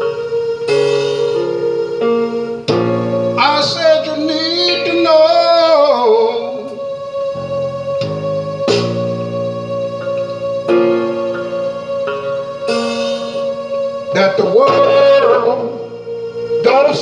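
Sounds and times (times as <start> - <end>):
electric keyboard chords: 0.0 - 17.0
man singing into microphone: 3.4 - 6.8, 14.1 - 15.9, 16.6 - 17.0.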